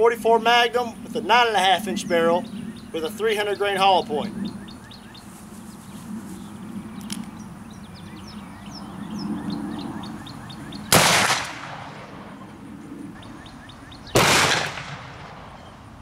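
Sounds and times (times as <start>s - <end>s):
birds chirping: 0.0s - 16.0s
revolver gunshots: 10.9s - 12.5s, 14.1s - 15.8s.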